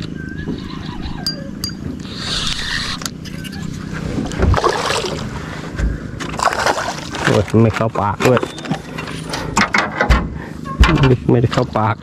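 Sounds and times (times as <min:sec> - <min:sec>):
boat motor humming: 0:00.0 - 0:09.6.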